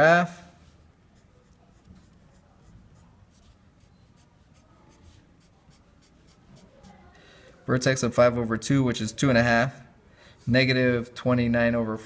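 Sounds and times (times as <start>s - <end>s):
marker pen scratching on paper: 1.1s - 7.1s.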